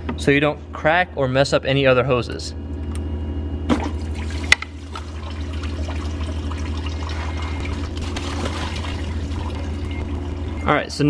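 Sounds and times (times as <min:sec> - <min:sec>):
coolant pouring into a pan: 0:03.9 - 0:09.6.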